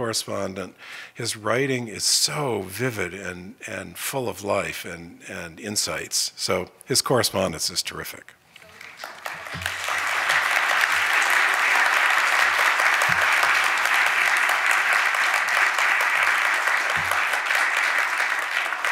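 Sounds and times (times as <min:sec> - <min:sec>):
audience applauding: 0:08.6 - 0:18.9.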